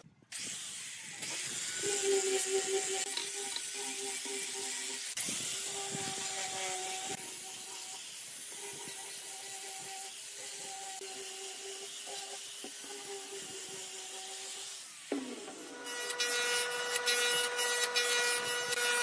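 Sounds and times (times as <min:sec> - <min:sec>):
electric grinder sanding wood: 0:00.4 - 0:19.0.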